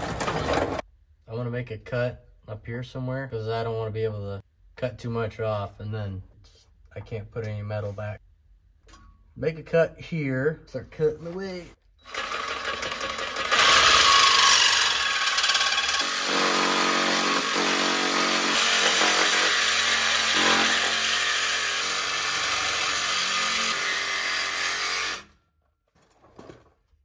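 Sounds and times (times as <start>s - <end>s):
reciprocating saw cutting metal pipe: 12.1s - 25.3s.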